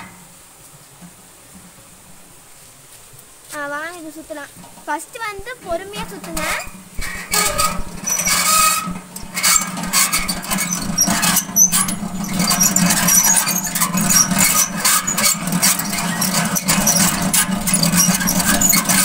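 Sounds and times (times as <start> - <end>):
honey extractor gears humming: 4.0 - 19.0
short high squeaks: 5.7 - 19.0.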